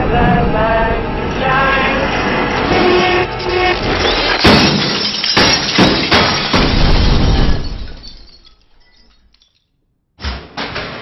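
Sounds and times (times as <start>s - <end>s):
glass shattering: 3.3s - 9.8s.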